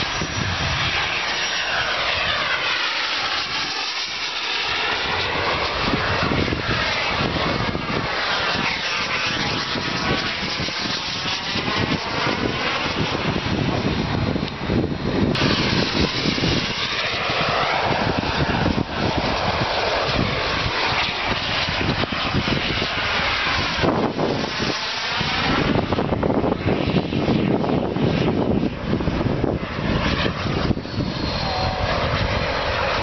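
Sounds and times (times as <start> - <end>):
model jet turbine engine: 0.0 - 33.0.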